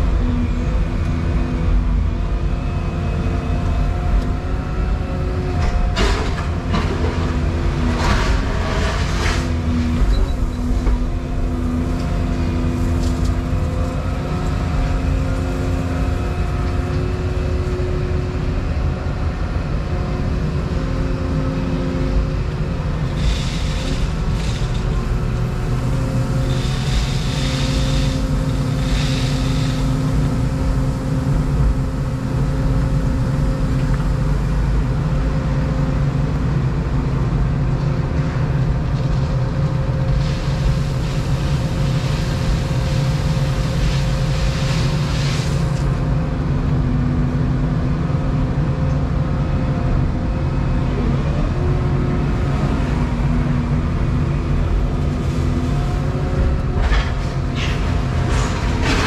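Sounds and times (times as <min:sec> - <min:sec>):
excavator diesel engine and hydraulics: 0:00.0 - 0:59.0
knocks and clatters: 0:05.6 - 0:11.0, 0:56.8 - 0:59.0.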